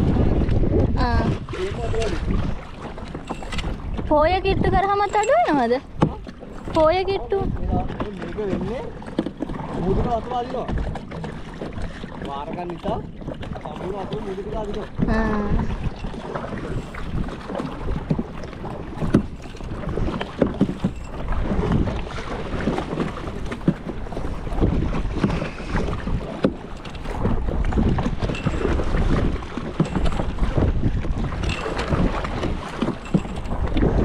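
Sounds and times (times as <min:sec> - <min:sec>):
paddle splashing in water: 0:00.0 - 0:34.0
wind buffeting microphone: 0:00.0 - 0:34.0.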